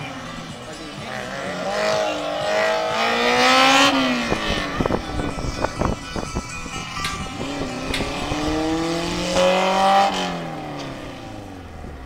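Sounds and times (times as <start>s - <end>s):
car engine revving past: 1.0s - 5.2s, 7.3s - 12.0s.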